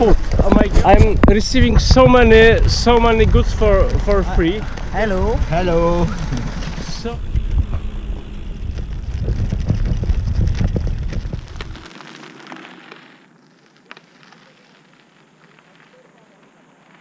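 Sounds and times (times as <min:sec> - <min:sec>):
loud low rumble: 0:00.0 - 0:11.8
bicycle tyres crunching on gravel: 0:00.0 - 0:17.0.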